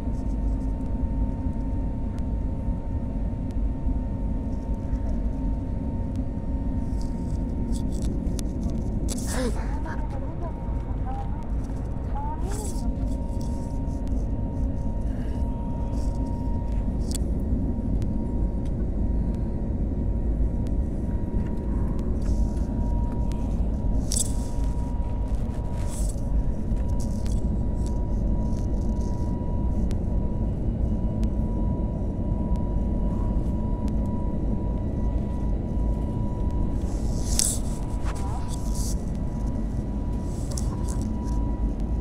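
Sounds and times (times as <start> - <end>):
jet engine rumble in cabin: 0.0 - 42.0
faint rustles: 36.7 - 41.5.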